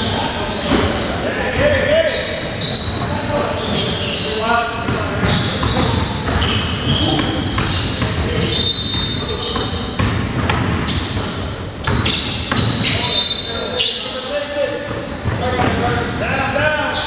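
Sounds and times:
players' voices: 0.0 - 17.0
sneaker squeaks: 0.0 - 17.0
basketball bouncing on court: 4.8 - 13.1, 14.9 - 16.0.

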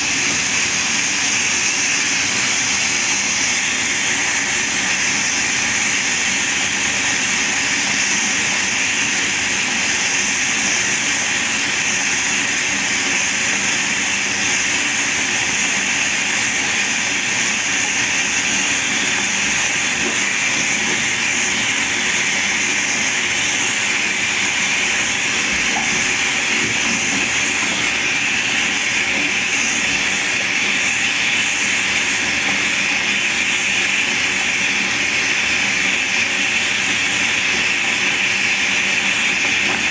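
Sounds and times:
bath tap water pouring: 13.9 - 33.8.

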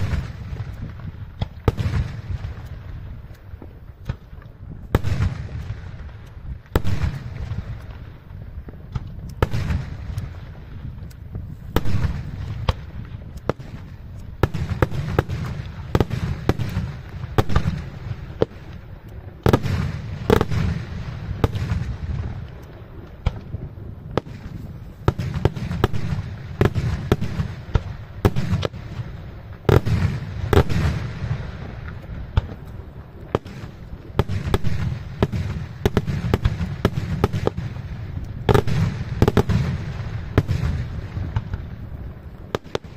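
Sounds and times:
fireworks bangs: 0.0 - 42.9.

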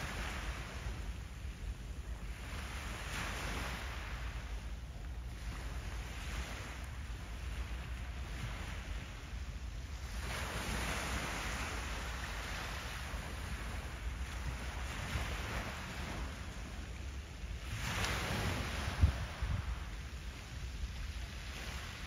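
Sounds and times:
waves washing against shore: 0.0 - 22.0.

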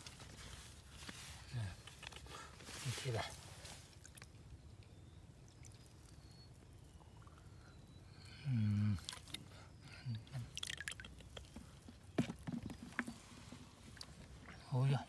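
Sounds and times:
small splashes and drips: 3.6 - 7.5, 9.0 - 9.5, 10.1 - 12.0
sharp wet clicks: 4.0 - 7.6, 9.0 - 12.0
short low vocal sound: 8.3 - 9.4.

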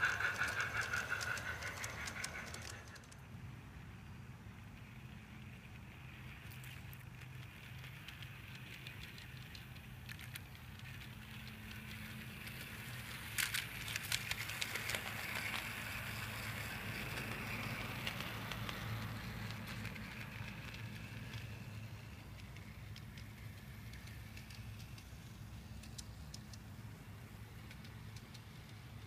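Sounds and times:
toy train motor whirring: 0.0 - 3.2, 5.2 - 29.0
sharp clicks: 0.1 - 3.2.

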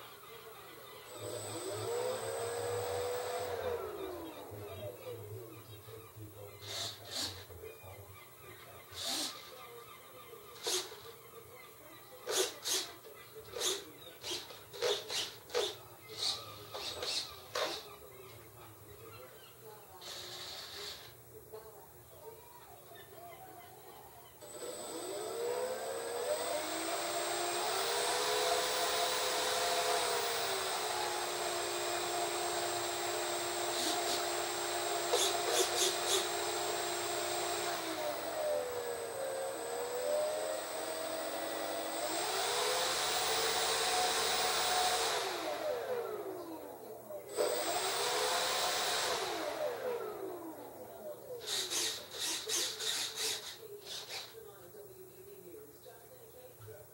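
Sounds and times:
model airplane electric motor whine: 0.0 - 5.4, 24.4 - 54.4.

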